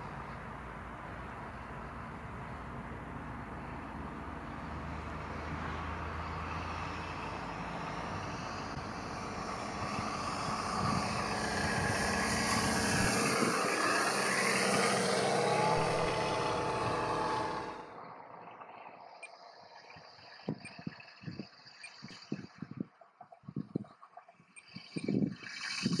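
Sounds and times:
simulated radial engine sound: 0:00.0 - 0:26.0
model plane propeller and motor: 0:08.4 - 0:17.8.

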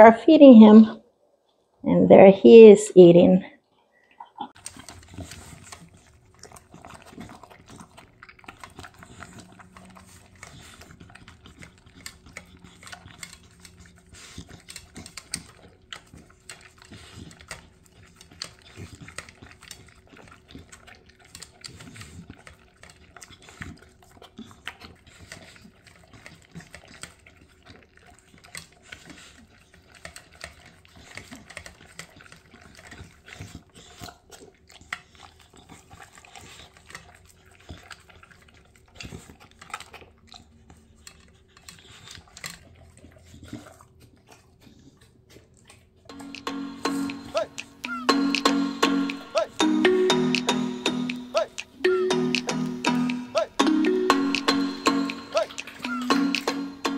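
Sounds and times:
dog crunching kibble: 0:04.6 - 0:49.9.

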